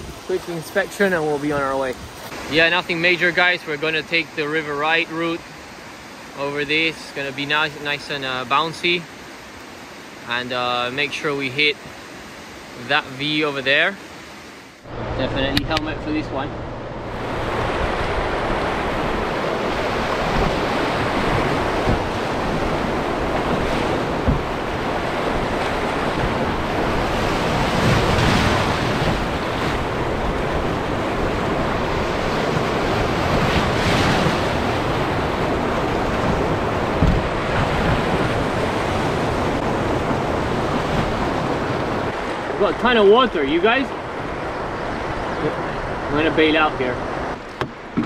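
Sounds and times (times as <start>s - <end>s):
rushing white water: 0.0s - 48.0s
waves splashing against hull: 11.0s - 48.0s.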